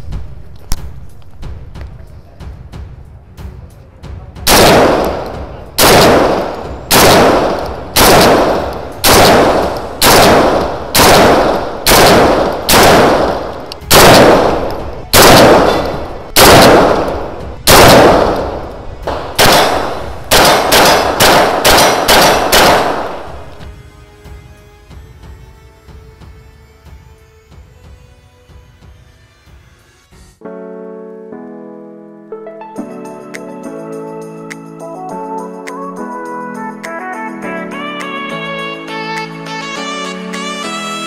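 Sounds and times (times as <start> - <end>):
rifle shots with echo: 4.4 - 23.7
quick lighter gunshots: 4.5 - 23.7.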